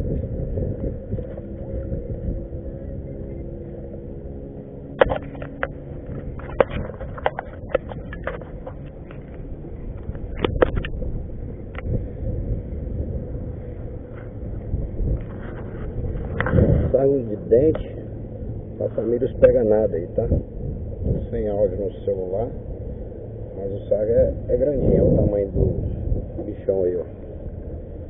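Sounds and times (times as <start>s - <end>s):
motor hum: 0.0s - 28.0s
wind rumble on microphone: 0.0s - 28.0s
sharp knocks and clicks: 4.9s - 11.0s.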